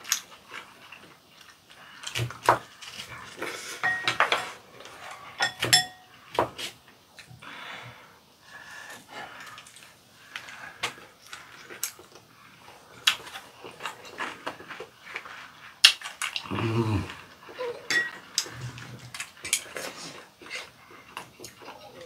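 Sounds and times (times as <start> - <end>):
chewing: 9.3 - 22.0
person humming: 16.4 - 17.8.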